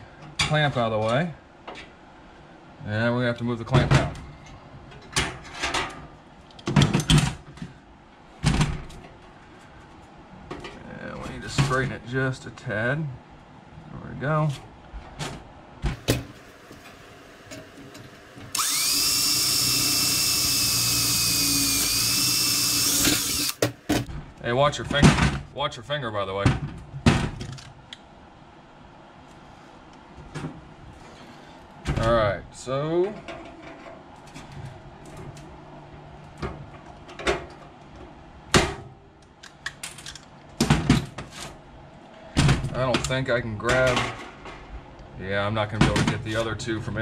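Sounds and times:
cordless drill boring sheet metal: 18.5 - 23.6.

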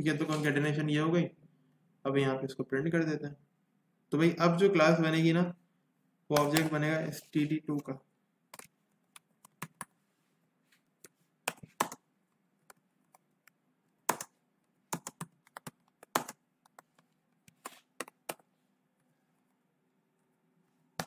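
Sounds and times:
typing on computer keyboard: 14.1 - 18.5.

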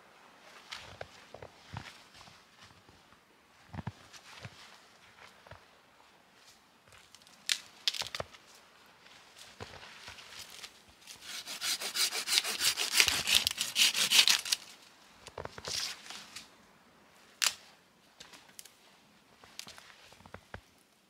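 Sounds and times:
rustling: 6.4 - 11.4
hand saw cutting branch: 11.2 - 14.7.

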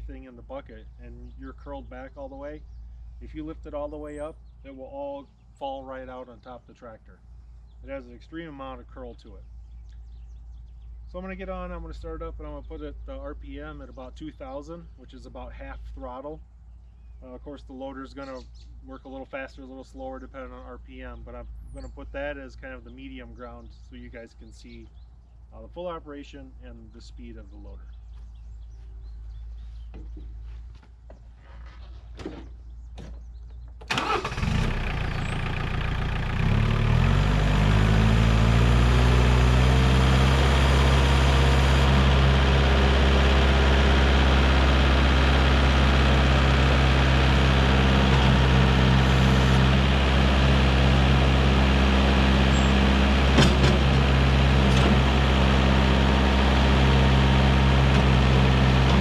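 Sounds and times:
tractor diesel engine: 33.8 - 59.0.

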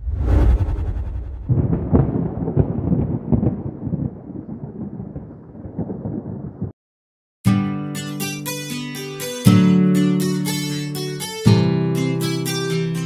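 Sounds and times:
deep thunder-like boom: 0.0 - 6.7
crackling rumbling tail: 0.0 - 6.8.

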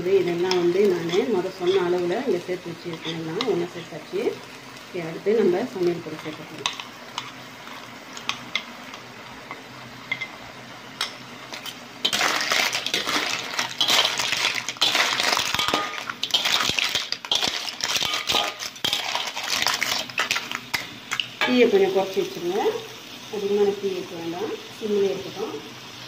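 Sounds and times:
spoon scraping a bowl: 2.9 - 3.3
clams clattering in a metal wok: 11.0 - 21.7.

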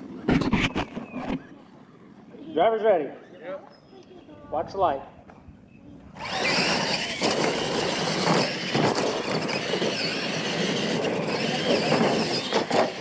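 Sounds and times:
tyres churning dirt: 6.1 - 13.0
electric motor whine: 6.2 - 13.0.

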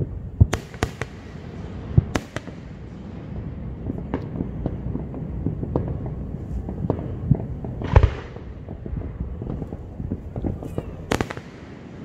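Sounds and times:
continuous low rumble: 0.0 - 12.0
faint firework pops: 3.9 - 4.8, 5.4 - 11.7.

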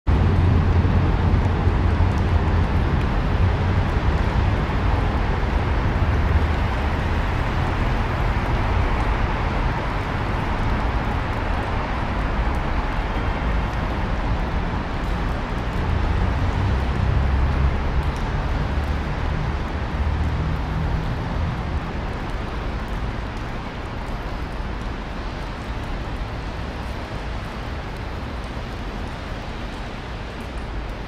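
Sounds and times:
low rumble of city traffic: 0.0 - 31.0.

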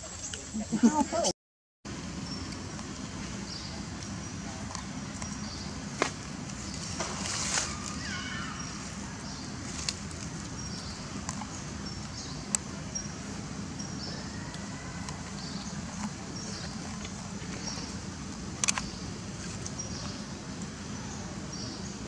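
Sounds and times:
short rustle: 6.7 - 8.2
sharp clicks: 18.6 - 18.9.

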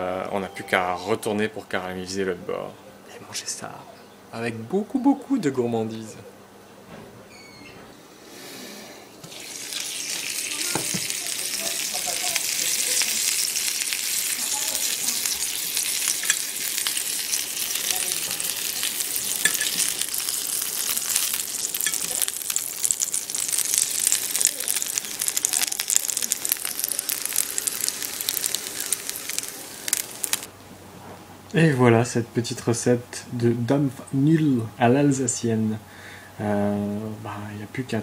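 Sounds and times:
butter sizzling and crackling: 9.2 - 30.5.

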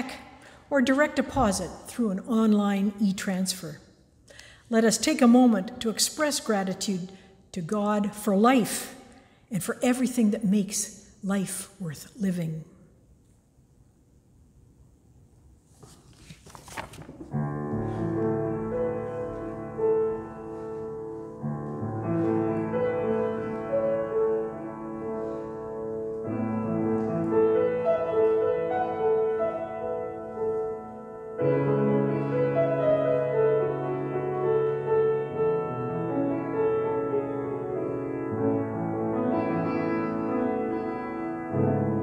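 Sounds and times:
brief rustle: 15.7 - 18.3
slow keyboard music: 17.2 - 42.0.

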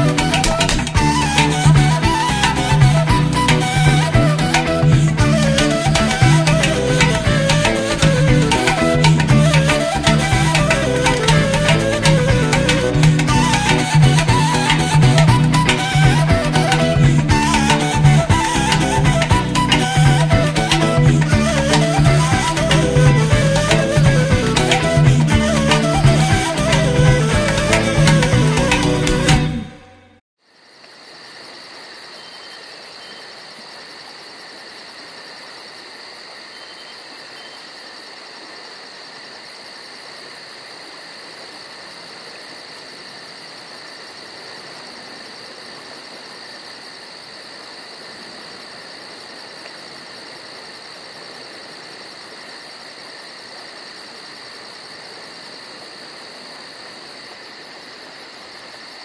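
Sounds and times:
insect chorus: 30.4 - 59.0.

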